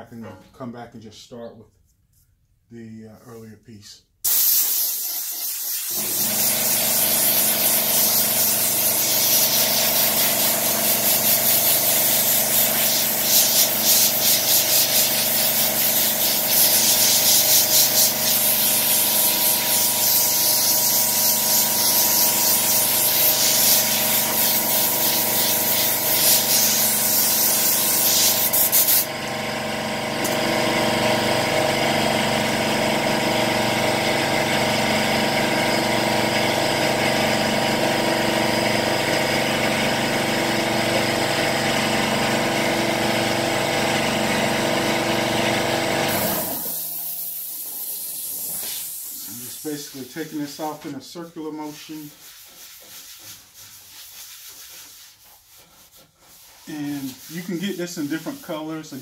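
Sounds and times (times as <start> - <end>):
air blow gun hissing: 4.2 - 29.1, 46.0 - 50.8
air compressor running: 4.2 - 50.9.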